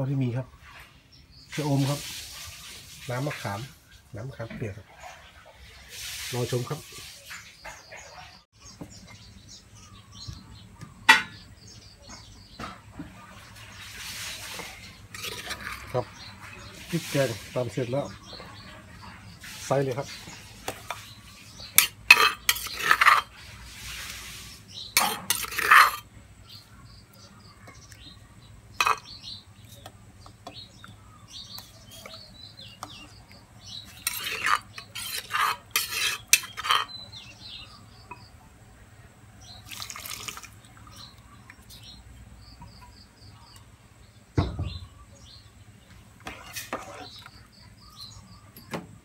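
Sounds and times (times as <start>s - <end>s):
metal ladle scraping a pot: 13.3s - 26.6s, 28.7s - 29.9s, 31.4s - 37.3s, 46.2s - 48.1s
water splashing as poured: 39.6s - 40.7s.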